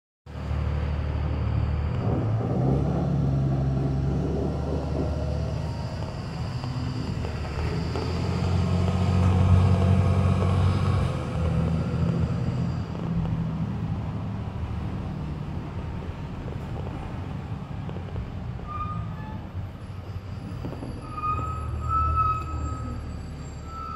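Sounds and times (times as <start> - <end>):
diesel bus engine: 0.3 - 23.9.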